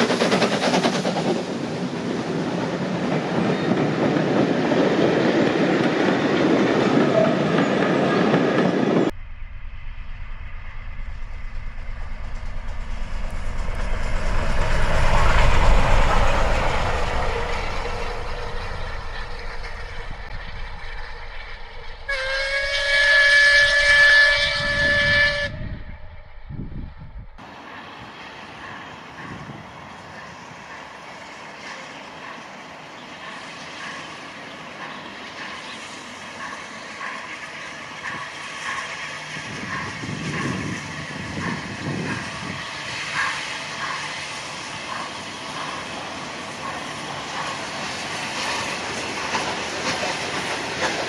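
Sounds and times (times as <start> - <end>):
steam train passing: 0.0 - 51.0
train rumble: 0.0 - 51.0
steam whistle blast: 22.0 - 25.9.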